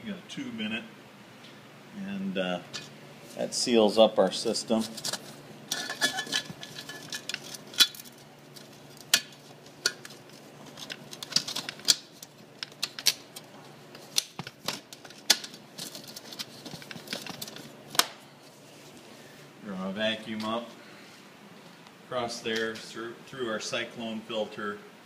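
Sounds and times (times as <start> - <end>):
metal lid clanking: 5.7 - 8.0.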